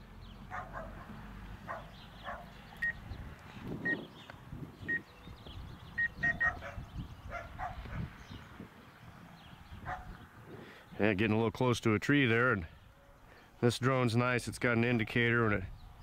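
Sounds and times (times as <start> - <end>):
dog barking: 0.5 - 1.1, 1.7 - 2.6, 6.2 - 8.1, 9.8 - 10.2
remote controller warning beep: 4.9 - 5.1, 6.0 - 6.5.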